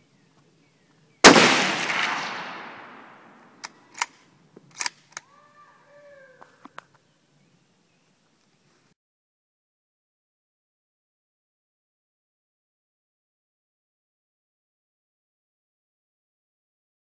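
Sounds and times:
rifle shot with echo: 0:01.2 - 0:03.6
rifle bolt clicks: 0:03.6 - 0:05.2.

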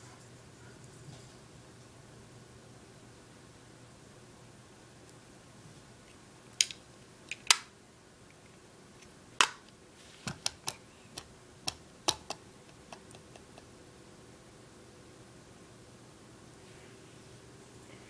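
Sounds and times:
small hard objects clicking: 0:10.4 - 0:13.7.

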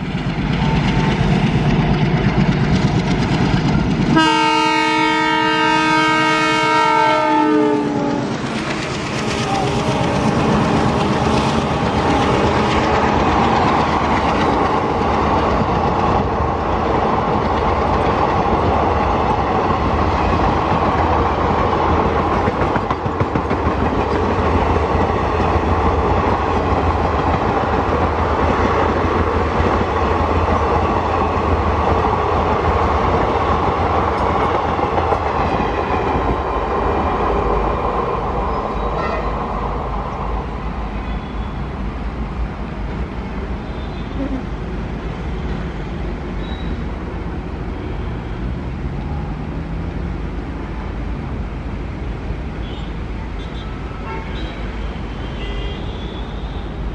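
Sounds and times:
train wheels clattering over rail joints: 0:00.0 - 0:04.2, 0:08.2 - 0:37.6.

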